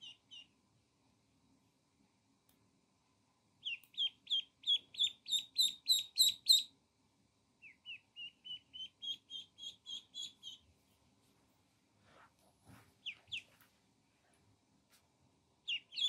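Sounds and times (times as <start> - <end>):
ducklings peeping: 0.0 - 0.6, 3.6 - 6.7, 7.6 - 10.7, 13.0 - 13.6, 15.6 - 16.0.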